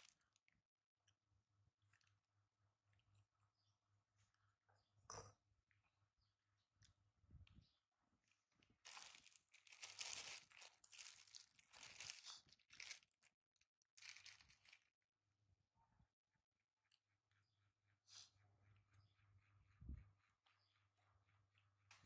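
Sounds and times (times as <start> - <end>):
plastic bag crinkling: 8.8 - 13.3, 14.0 - 14.9.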